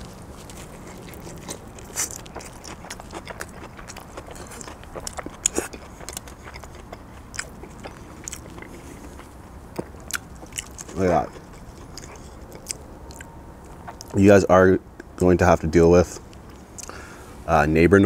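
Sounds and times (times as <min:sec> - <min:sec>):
chewing pizza with crunches: 0:00.0 - 0:14.3.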